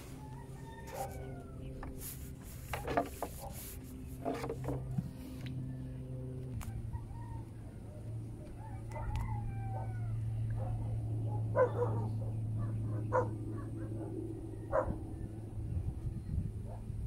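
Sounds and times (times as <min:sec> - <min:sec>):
steady low hum: 0:00.0 - 0:17.0
dog barking: 0:08.9 - 0:10.0, 0:10.6 - 0:15.0.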